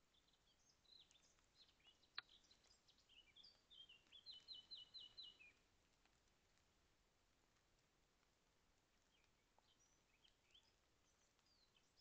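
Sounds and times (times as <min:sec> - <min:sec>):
songbird singing: 0:00.0 - 0:06.6, 0:07.5 - 0:12.0.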